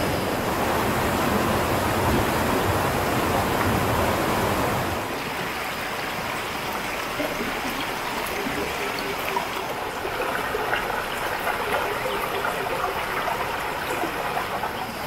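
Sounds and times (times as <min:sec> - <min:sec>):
stream rushing over rocks: 0:00.0 - 0:15.0.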